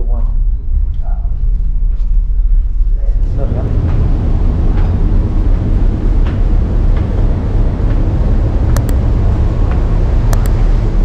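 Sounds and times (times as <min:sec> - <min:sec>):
ship engine rumble: 0:00.0 - 0:11.0
sharp clicks: 0:08.7 - 0:09.0, 0:10.3 - 0:10.6.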